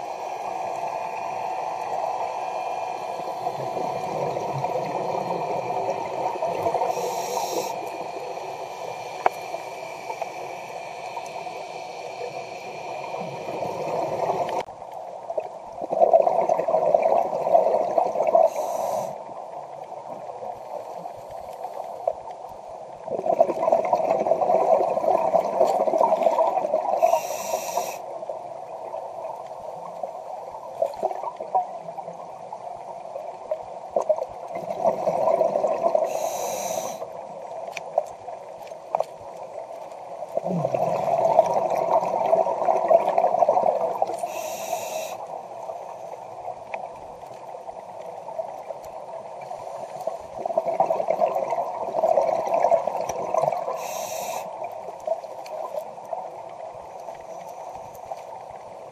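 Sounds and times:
diver inhaling through regulator: 6.7 - 10.7, 18.4 - 19.2, 26.9 - 28.1, 36.0 - 37.1, 44.2 - 45.3, 53.7 - 54.6
bubbling exhaled air: 15.8 - 19.2, 23.0 - 28.0, 34.5 - 37.0, 40.4 - 45.2.

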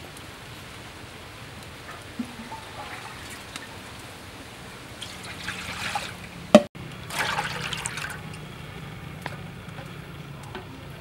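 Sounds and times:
water splashing into a steel wok: 1.9 - 8.5.

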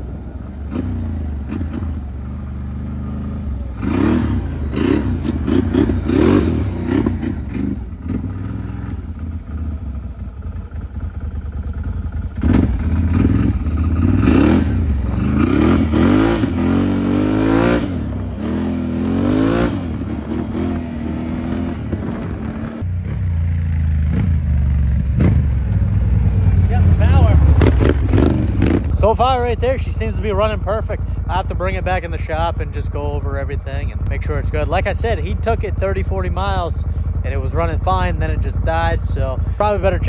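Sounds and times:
quad engine revving: 0.0 - 10.0, 11.4 - 40.0.

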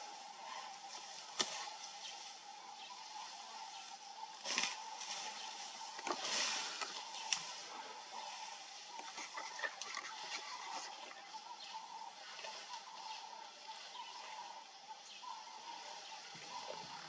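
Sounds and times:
leaves rustling: 0.0 - 17.0
twigs snapping: 1.3 - 1.8.

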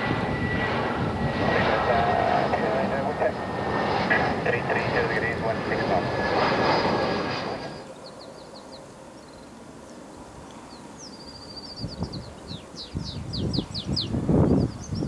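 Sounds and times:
low rumbling gusts: 0.0 - 7.9, 11.7 - 15.0
jet airliner engine: 0.0 - 15.0
small birds chirping: 7.8 - 15.0.

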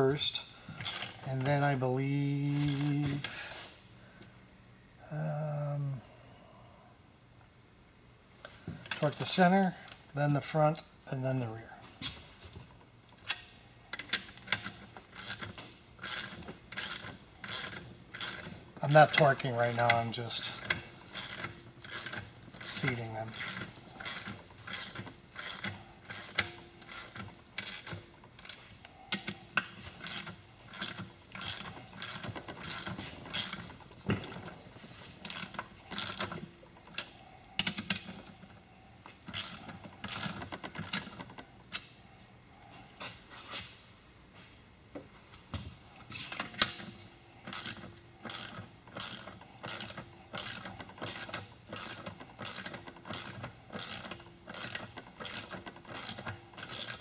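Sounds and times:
ratchet wrench clicking: 13.3 - 34.3, 35.3 - 38.2, 39.3 - 42.0, 46.3 - 57.0.

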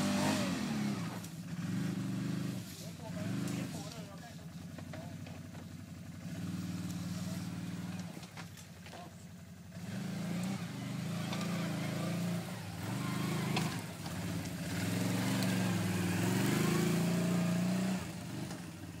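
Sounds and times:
atv engine revving: 0.0 - 19.0.

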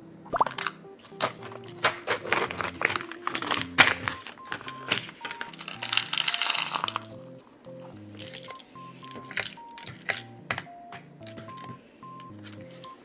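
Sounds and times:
background music: 0.0 - 13.0
plastic cup crinkling: 0.4 - 7.2, 8.1 - 10.7
foil lid crinkling: 1.0 - 7.2, 8.2 - 10.2.

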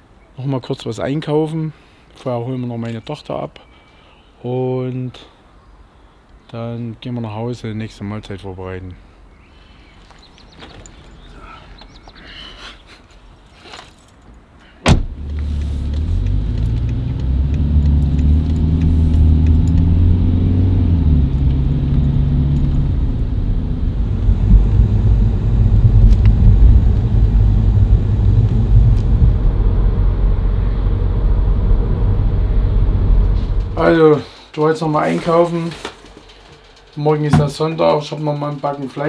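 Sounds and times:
car engine and road noise: 13.3 - 34.1
sharp thump: 14.8 - 15.2.

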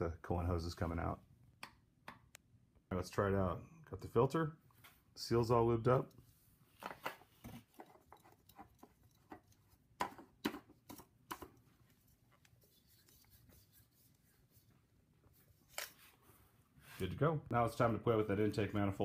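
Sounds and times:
metal oil filter clicking and scraping: 7.7 - 9.9.

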